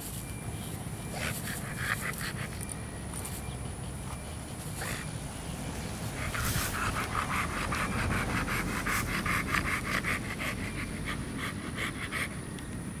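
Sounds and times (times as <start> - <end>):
dog panting fast: 6.0 - 12.6.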